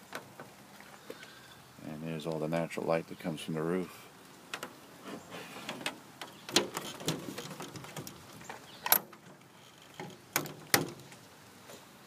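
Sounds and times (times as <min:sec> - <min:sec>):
light clicks and knocks: 0:04.5 - 0:04.8, 0:05.6 - 0:11.8.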